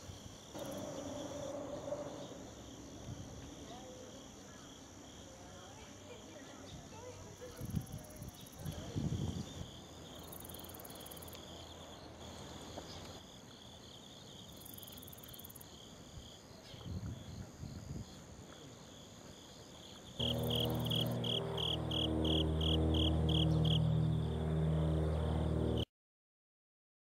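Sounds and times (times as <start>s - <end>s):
insects chirping in pulsing trill: 0.0s - 6.2s, 6.9s - 12.3s, 13.2s - 15.9s, 19.8s - 25.9s
loud regular chirp: 0.6s - 3.4s, 20.2s - 25.8s
held low musical notes: 0.6s - 3.7s, 20.2s - 25.8s
high insect buzzing: 20.2s - 25.8s.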